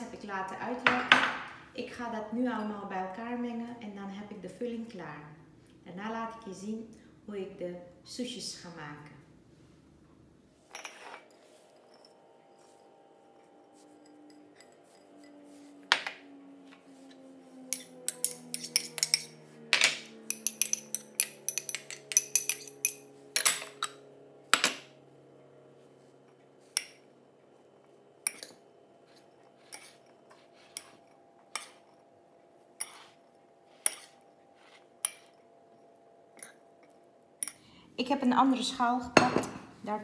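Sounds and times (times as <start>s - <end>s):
cutlery clinking on ceramic bowls: 10.7s - 12.2s, 17.8s - 24.0s, 28.2s - 28.6s.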